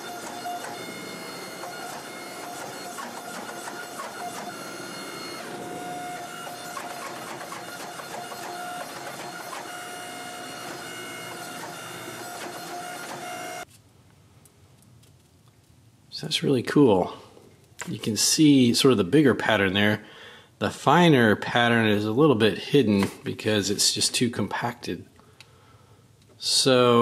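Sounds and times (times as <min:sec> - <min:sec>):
hydraulic press whining: 0:00.0 - 0:13.7.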